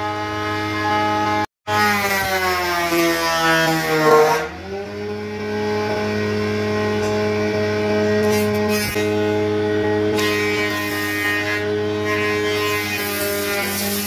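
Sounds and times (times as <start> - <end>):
wood jointer running: 0.0 - 14.0.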